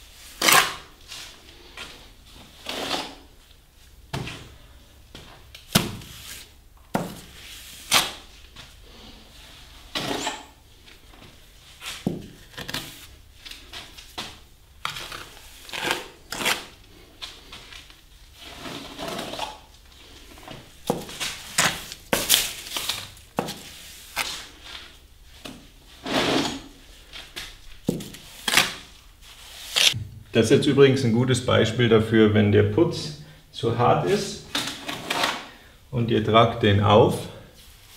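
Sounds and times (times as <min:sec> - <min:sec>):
trowel scraping plaster: 0:02.6 - 0:03.3, 0:09.9 - 0:10.5, 0:18.4 - 0:19.7, 0:26.0 - 0:26.7.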